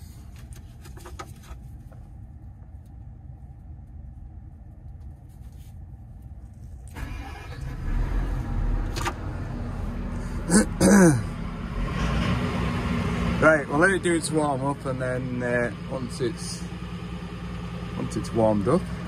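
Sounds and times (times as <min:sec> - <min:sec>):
excavator diesel engine running: 0:07.0 - 0:19.0.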